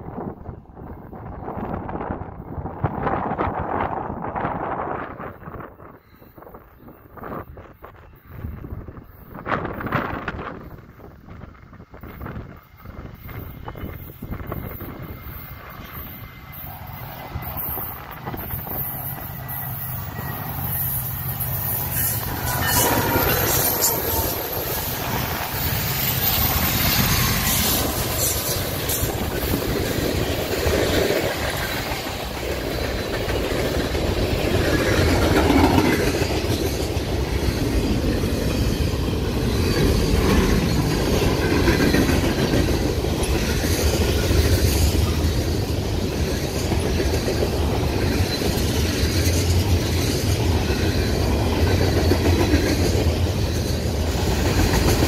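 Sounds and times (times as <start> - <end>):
freight train wheels on rails: 0.0 - 55.0.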